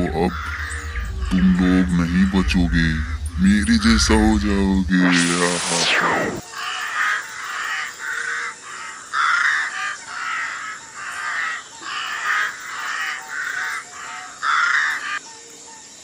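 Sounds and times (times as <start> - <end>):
crows cawing: 0.1 - 1.1, 6.6 - 15.2.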